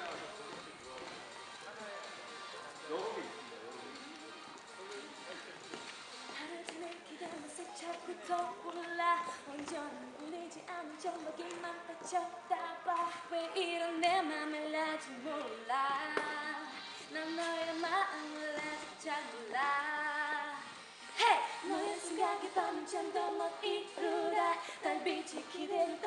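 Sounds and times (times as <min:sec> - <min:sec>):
two women singing a pop song: 0:06.3 - 0:26.0.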